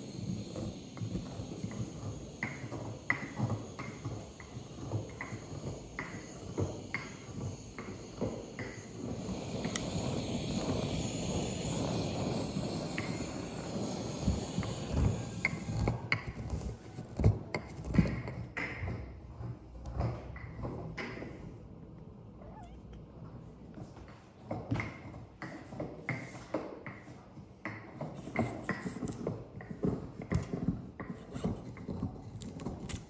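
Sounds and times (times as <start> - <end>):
gas torch hissing: 0.0 - 18.3, 27.7 - 33.0.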